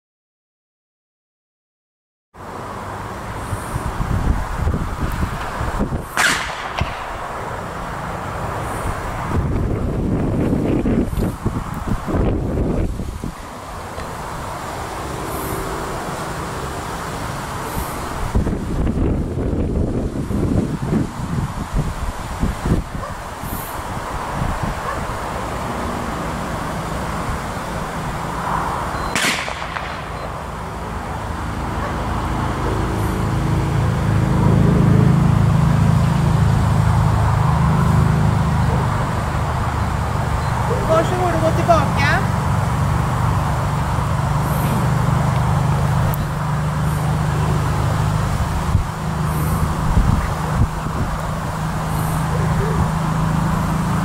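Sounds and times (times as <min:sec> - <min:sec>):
wind noise: 0:03.2 - 0:54.0
sharp gunshot: 0:06.1 - 0:07.2, 0:29.1 - 0:30.2.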